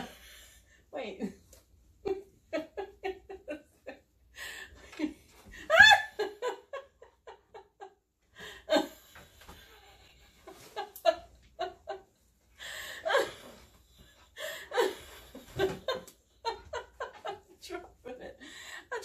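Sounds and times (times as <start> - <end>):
woman laughing: 4.8 - 8.9, 14.5 - 19.0.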